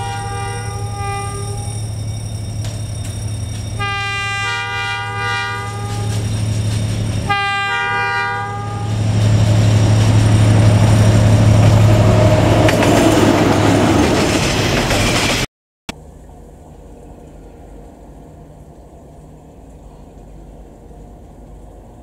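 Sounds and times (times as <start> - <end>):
locomotive horn blasts: 0.0 - 1.9, 3.8 - 6.4, 7.2 - 9.2
diesel engine low drone: 0.0 - 14.2, 15.9 - 22.0.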